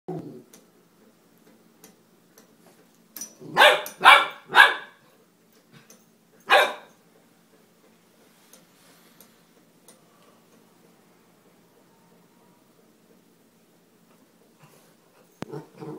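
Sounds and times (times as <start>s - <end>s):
puppy barking: 3.5s - 5.0s, 6.5s - 6.9s.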